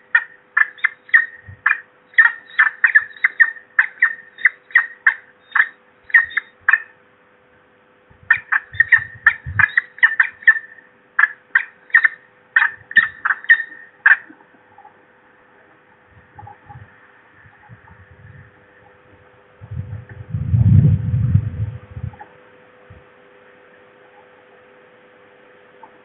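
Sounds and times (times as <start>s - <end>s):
falcon calling: 0.0s - 7.0s, 8.3s - 19.3s
faint low thumps: 16.0s - 23.1s.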